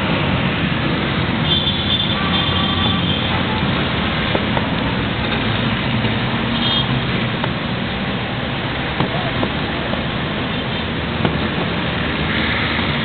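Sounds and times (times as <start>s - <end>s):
fireworks rumbling and crackling: 8.7s - 10.4s, 11.0s - 12.1s.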